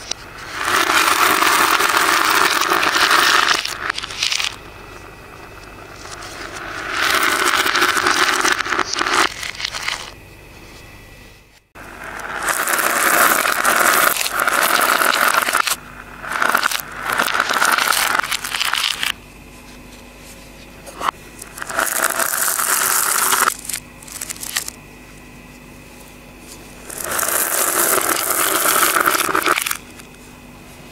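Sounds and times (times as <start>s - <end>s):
reversed beads and glass clattering: 0.0s - 4.6s, 5.4s - 10.2s, 12.0s - 19.2s, 21.5s - 24.8s, 26.8s - 29.8s.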